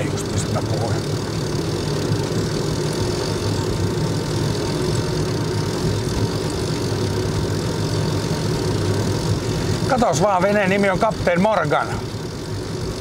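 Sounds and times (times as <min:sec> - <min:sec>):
motor vehicle engine drone: 0:00.0 - 0:13.0.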